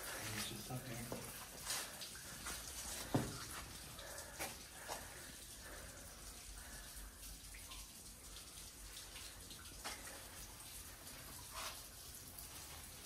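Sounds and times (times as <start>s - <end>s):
water dripping in cave: 0.0s - 13.0s.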